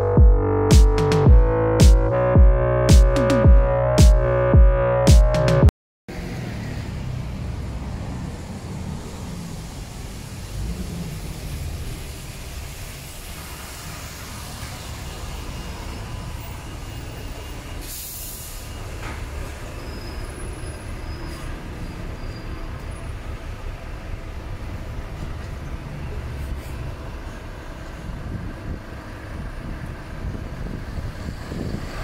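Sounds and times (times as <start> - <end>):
traffic rumble: 0.0 - 32.0
faint high squeals: 18.4 - 23.1.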